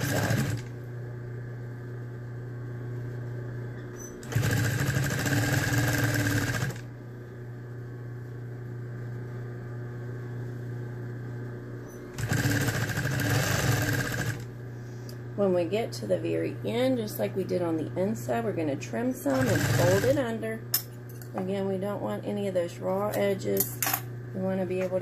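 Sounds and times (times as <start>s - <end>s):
sewing machine stitching: 0.0s - 0.7s, 4.2s - 6.8s, 12.2s - 14.5s, 19.3s - 20.2s
sewing machine motor humming: 0.0s - 0.8s, 4.2s - 6.9s, 12.2s - 14.5s, 19.3s - 20.2s.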